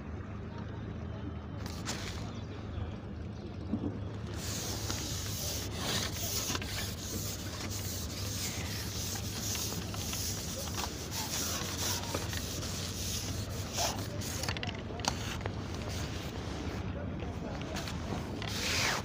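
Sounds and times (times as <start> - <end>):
low steady hum: 0.0 - 18.8
rustling against microphone: 4.3 - 16.9.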